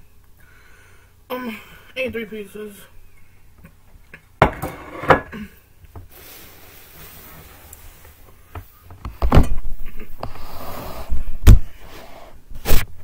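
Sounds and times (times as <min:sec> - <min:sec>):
objects bumping on table: 0:04.4 - 0:05.3
objects knocking on table: 0:04.4 - 0:05.3.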